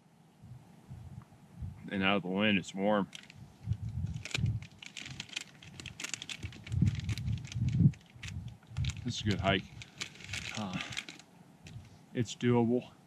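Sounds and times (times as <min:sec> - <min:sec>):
plastic wrapper crinkling: 0:03.1 - 0:03.4, 0:04.1 - 0:11.2
dull low thumps: 0:03.4 - 0:04.7, 0:06.4 - 0:10.5.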